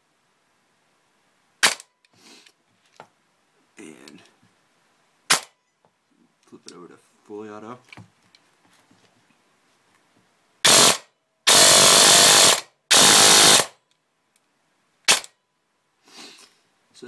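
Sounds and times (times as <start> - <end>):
airsoft gun firing full-auto bursts: 10.6 - 13.8.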